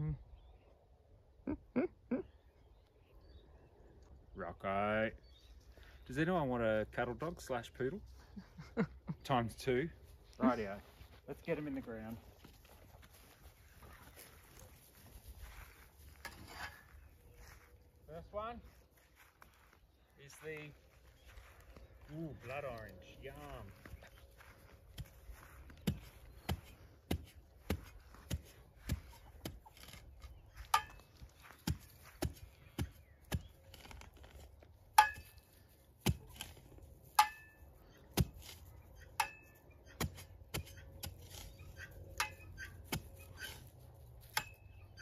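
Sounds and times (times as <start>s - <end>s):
metal spade digging into hard soil: 16.2s - 17.0s, 26.4s - 45.0s
metallic ring of spade blade: 37.2s - 37.6s.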